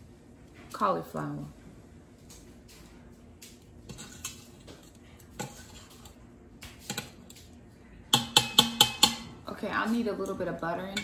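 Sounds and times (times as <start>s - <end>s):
metal utensil clinking on a pot: 8.1s - 9.4s, 10.2s - 11.0s.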